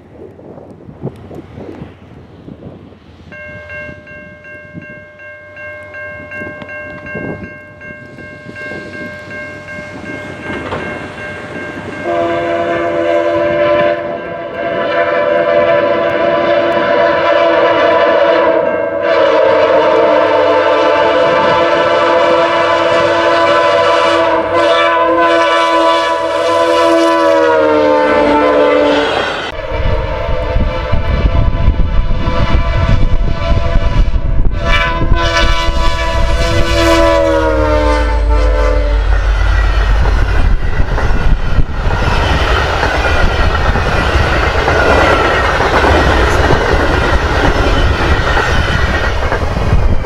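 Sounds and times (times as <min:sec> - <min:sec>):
locomotive air horn blasts: 0:12.0 - 0:40.0.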